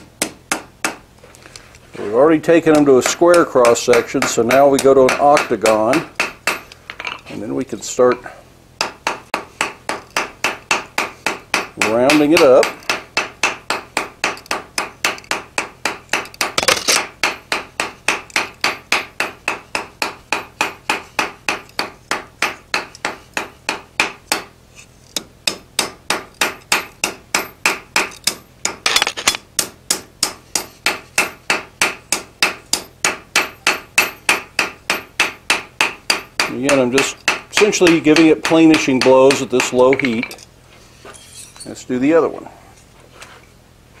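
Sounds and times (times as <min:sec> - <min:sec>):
hammer striking steel on anvil: 0:02.7 - 0:07.2, 0:08.8 - 0:24.5, 0:25.2 - 0:28.9, 0:29.6 - 0:40.4.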